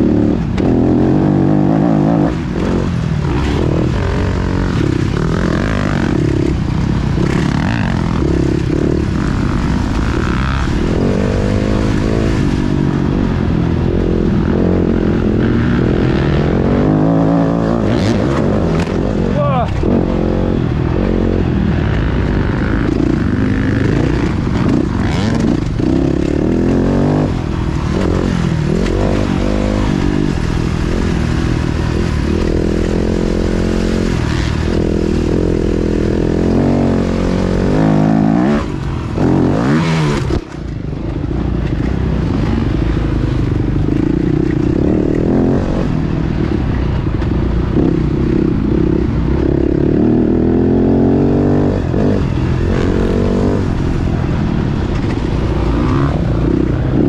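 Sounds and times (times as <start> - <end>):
motocross engine revving: 0.0 - 57.0.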